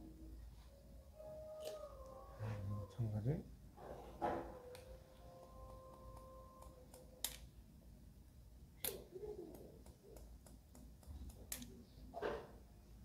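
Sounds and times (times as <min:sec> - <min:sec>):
scissors snipping hair: 0:08.8 - 0:11.8.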